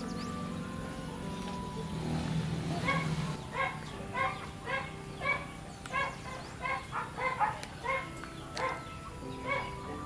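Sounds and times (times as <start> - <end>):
animal calling: 2.6 - 10.0.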